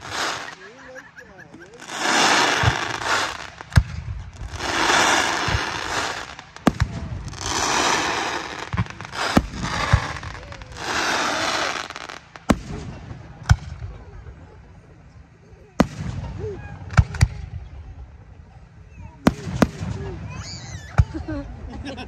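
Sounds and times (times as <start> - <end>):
fireworks crackling: 0.0 - 14.8, 15.8 - 22.0
firework shells bursting: 1.7 - 13.8.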